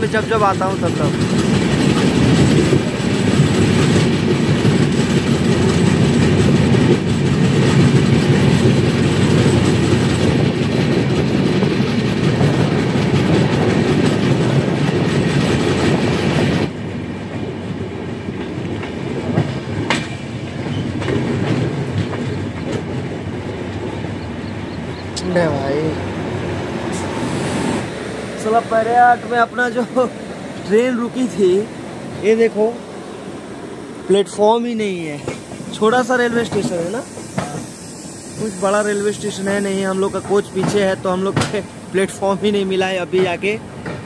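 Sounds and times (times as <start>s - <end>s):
train wheels clattering over rail joints: 0.0s - 25.1s, 35.0s - 44.0s
rushing air: 26.0s - 42.1s.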